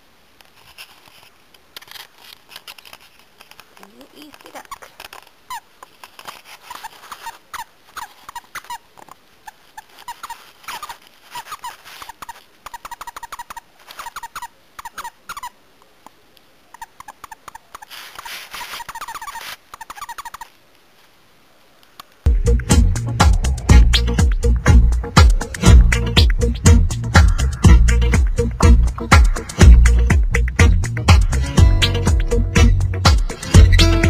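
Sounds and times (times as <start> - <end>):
dog chewing toy: 4.0 - 15.5
squeaky toy squeaking: 4.0 - 15.6, 16.7 - 20.5, 33.4 - 34.0.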